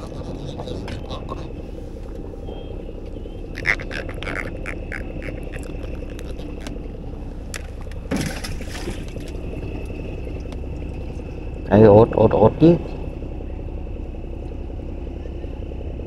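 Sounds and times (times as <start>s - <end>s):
low engine hum: 0.0s - 16.0s
catfish croaking clicks: 3.5s - 6.9s
water splash: 8.1s - 9.4s.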